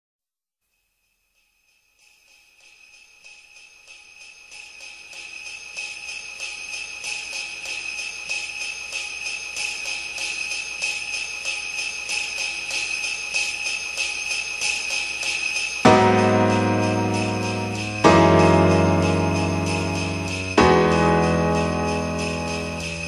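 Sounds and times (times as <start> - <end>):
jingling bell-like percussion: 0.7 - 23.0
sustained high ringing tone: 10.2 - 23.0.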